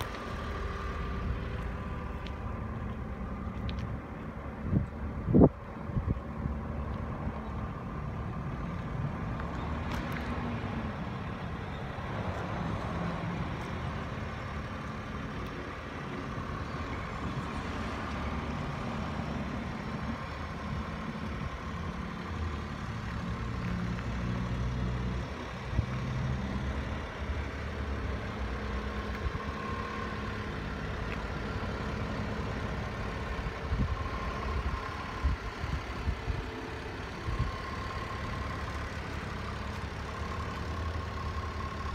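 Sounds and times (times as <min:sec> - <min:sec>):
small engine idling: 0:27.4 - 0:41.9.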